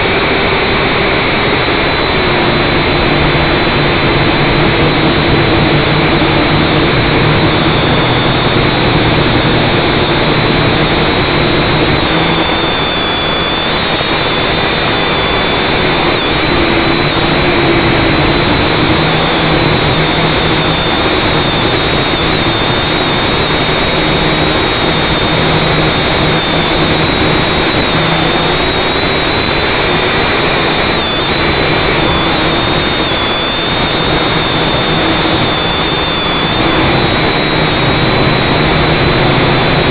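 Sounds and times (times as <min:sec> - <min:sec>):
drone motors whirring: 0:00.0 - 0:39.9.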